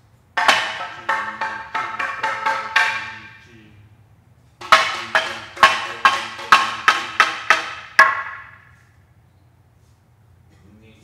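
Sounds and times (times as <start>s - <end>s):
mallet striking percussion bar: 0.4s - 3.4s, 4.6s - 8.7s.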